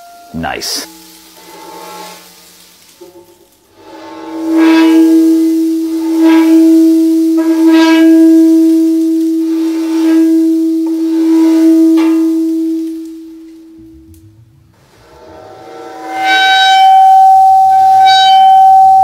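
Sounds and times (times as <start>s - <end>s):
vibrating plate high tone: 4.4s - 19.0s.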